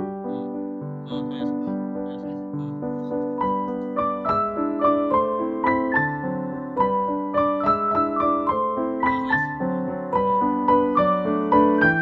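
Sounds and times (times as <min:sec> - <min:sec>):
keyboard melody: 0:00.0 - 0:12.0.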